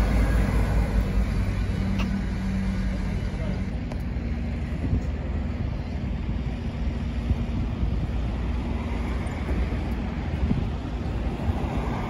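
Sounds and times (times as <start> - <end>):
bus engine drone: 0.0 - 12.0
road traffic rumble: 0.0 - 12.0
wind buffeting microphone: 4.0 - 12.0.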